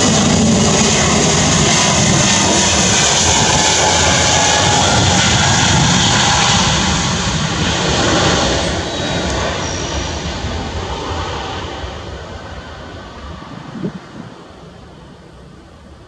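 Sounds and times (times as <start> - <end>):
jet engines at takeoff thrust: 0.0 - 16.0.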